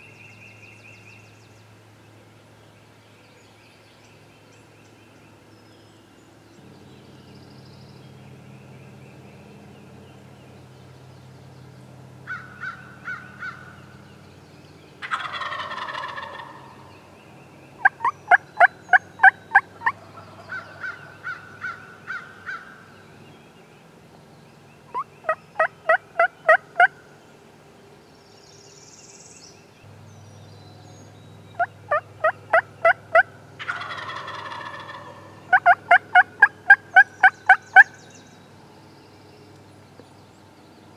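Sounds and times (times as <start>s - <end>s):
turkey yelps: 15.0s - 16.6s, 31.9s - 37.9s
turkey gobbling: 15.0s - 16.9s, 17.8s - 22.7s, 24.9s - 26.9s, 31.6s - 37.9s.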